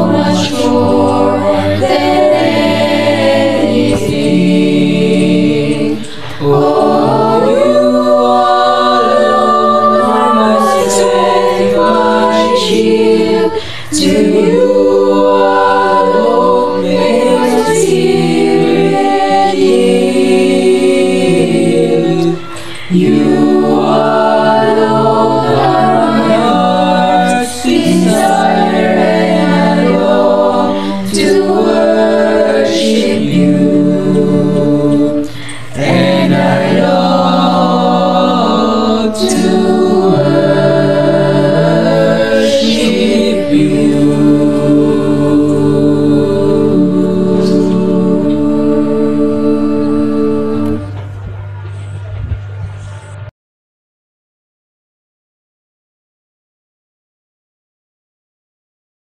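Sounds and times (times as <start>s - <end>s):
choir singing a cappella: 0.0s - 53.3s.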